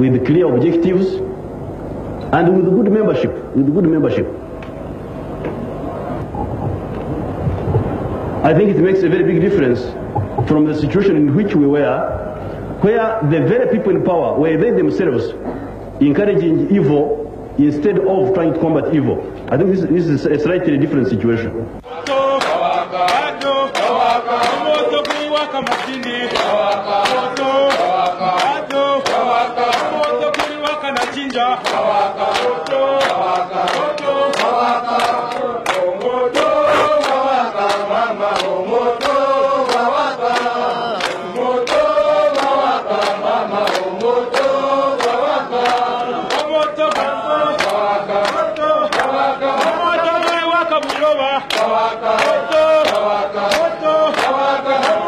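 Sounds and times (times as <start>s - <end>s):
men chanting together: 21.8s - 55.0s
hand-clapping: 21.9s - 55.0s.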